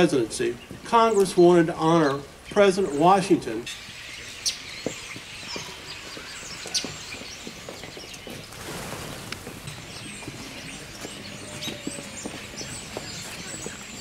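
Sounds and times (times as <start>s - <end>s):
outdoor background noise: 0.0s - 14.0s
bird chirps: 2.0s - 8.5s, 9.6s - 14.0s.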